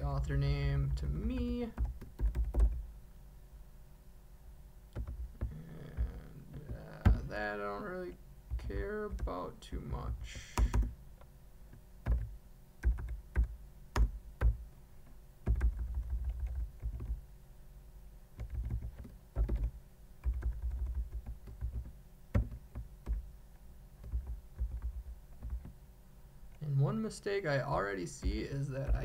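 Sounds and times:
keyboard typing: 0:01.0 - 0:02.8, 0:04.9 - 0:07.4, 0:08.5 - 0:09.4, 0:10.0 - 0:11.0, 0:11.7 - 0:14.6, 0:15.4 - 0:17.2, 0:18.4 - 0:23.3, 0:24.0 - 0:25.8, 0:28.2 - 0:29.0.

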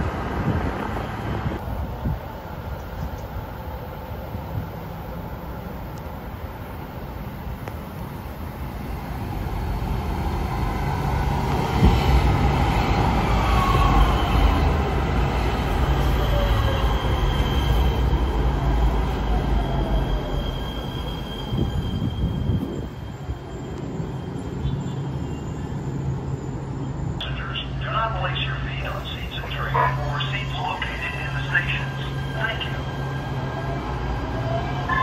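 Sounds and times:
high wheel squeal: 0:19.6 - 0:27.2.

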